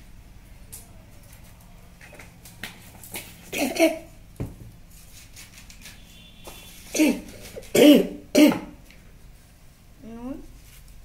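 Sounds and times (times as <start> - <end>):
person coughing: 3.5 - 4.1, 6.9 - 8.8.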